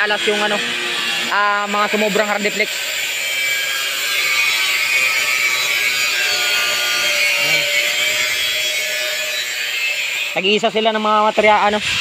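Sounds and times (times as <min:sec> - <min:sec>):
angle grinder cutting board: 0:00.0 - 0:12.0.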